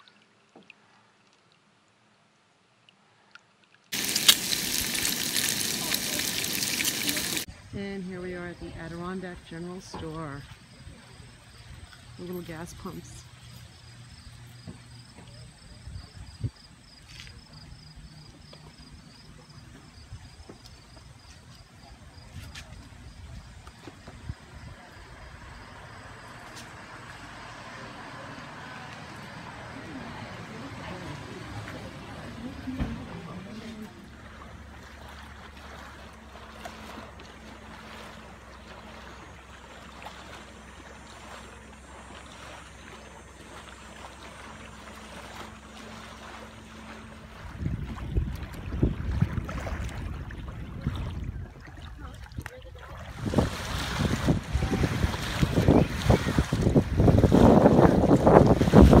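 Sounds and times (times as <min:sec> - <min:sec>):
wind: 0:00.0 - 0:59.0
water lapping: 0:03.9 - 0:16.2, 0:16.9 - 0:59.0
insect chirping: 0:04.0 - 0:07.4, 0:10.4 - 0:29.9
distant motorboat engine humming: 0:04.0 - 0:59.0.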